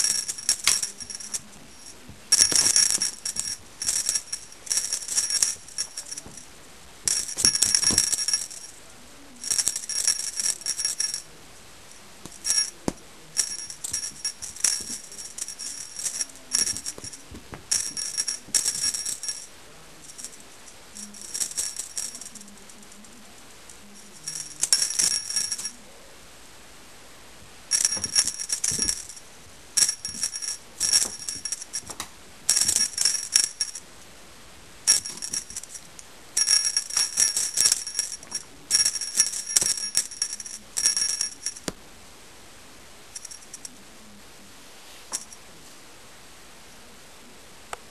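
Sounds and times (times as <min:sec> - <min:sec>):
small jingle bell jingling: 0:00.0 - 0:11.3, 0:12.0 - 0:23.1, 0:23.8 - 0:25.8, 0:27.7 - 0:29.2, 0:29.8 - 0:33.8, 0:34.8 - 0:41.8, 0:43.1 - 0:43.8.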